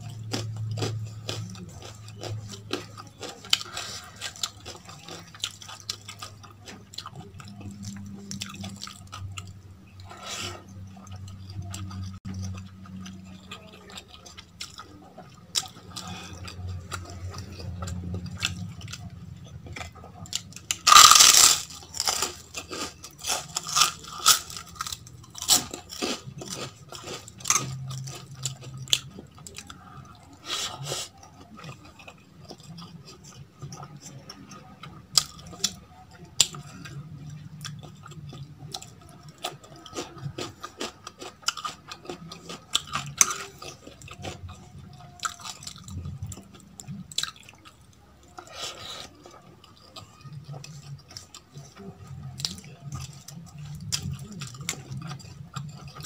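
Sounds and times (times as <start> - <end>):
chewing with wet clicks: 0.0 - 30.5, 31.1 - 56.0
loud crunch: 20.8 - 27.8.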